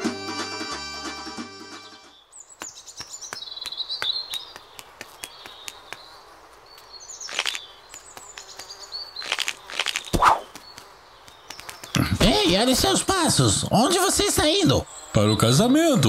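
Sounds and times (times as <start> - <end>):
high falling chirps: 2.3 - 16.0
light ticks: 2.6 - 12.0.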